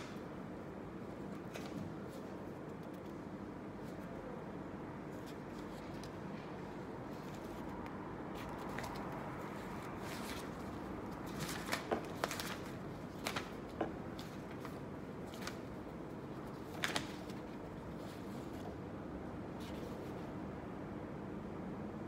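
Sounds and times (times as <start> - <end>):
low background hum: 0.0 - 22.0
paper envelopes rustling: 1.0 - 4.3, 5.0 - 18.9.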